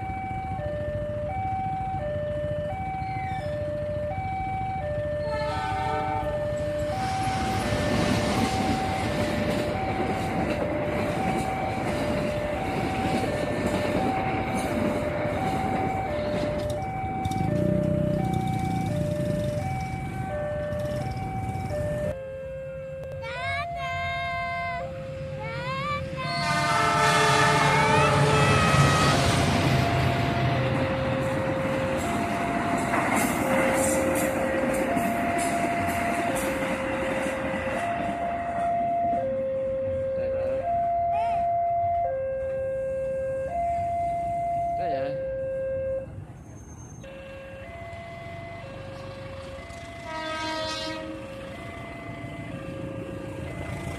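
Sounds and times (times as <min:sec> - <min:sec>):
train coaches rumbling past: 0:00.0 - 0:22.2, 0:22.8 - 0:53.9
two-tone crossing alarm: 0:00.0 - 0:53.9
train horn chord: 0:05.2 - 0:06.4, 0:26.2 - 0:29.6, 0:50.0 - 0:51.5.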